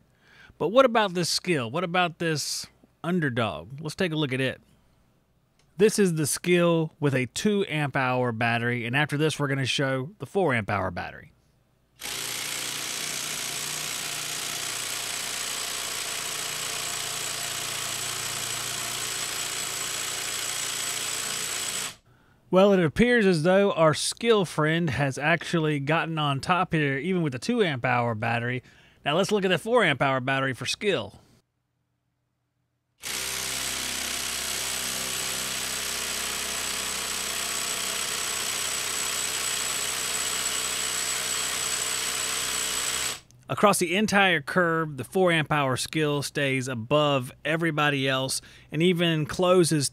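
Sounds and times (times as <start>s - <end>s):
impact driver hammering: 12.0s - 22.0s, 33.0s - 43.2s.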